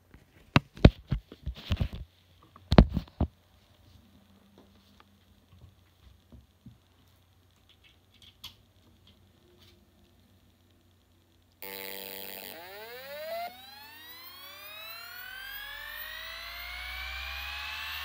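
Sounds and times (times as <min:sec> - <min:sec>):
hard drive spinning up: 0:11.6 - 0:18.0.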